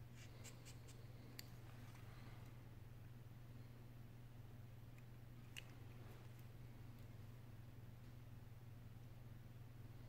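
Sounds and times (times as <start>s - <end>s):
light clicks of small parts: 4.9s - 7.1s.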